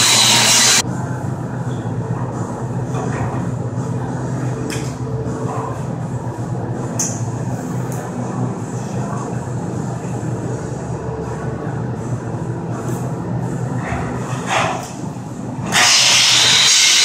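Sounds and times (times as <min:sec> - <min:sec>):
welding machine humming: 0:00.0 - 0:00.8, 0:15.6 - 0:17.0.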